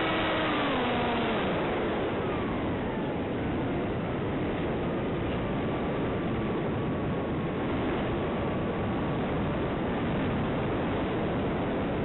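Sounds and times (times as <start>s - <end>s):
electric motor high whine: 0.0s - 4.6s.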